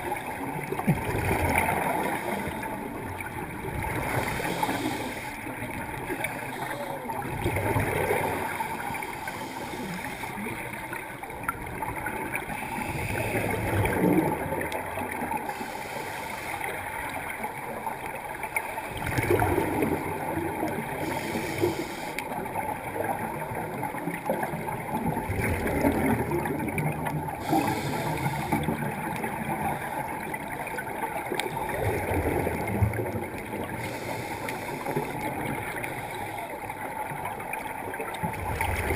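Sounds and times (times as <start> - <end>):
exhaled air bubbling underwater: 0.0 - 38.9
regulator hiss on inhalation: 4.1 - 5.4, 21.0 - 22.3, 27.4 - 28.8, 33.8 - 35.1.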